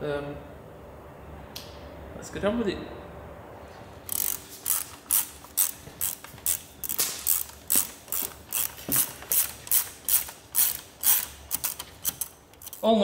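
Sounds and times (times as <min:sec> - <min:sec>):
ratchet wrench clicking: 0:04.0 - 0:13.0.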